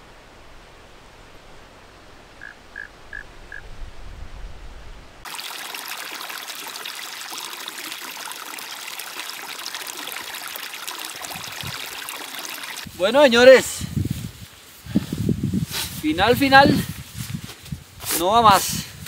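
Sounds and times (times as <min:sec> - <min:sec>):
faint low rumble: 0:00.0 - 0:05.2
stream trickling through grass: 0:05.2 - 0:19.0.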